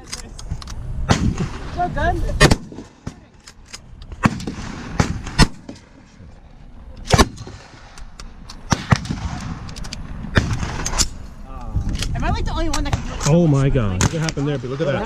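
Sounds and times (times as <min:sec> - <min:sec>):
gunshots: 0:01.1 - 0:03.4, 0:04.1 - 0:05.9, 0:07.1 - 0:08.0, 0:08.7 - 0:09.7, 0:10.3 - 0:11.2, 0:12.8 - 0:15.0.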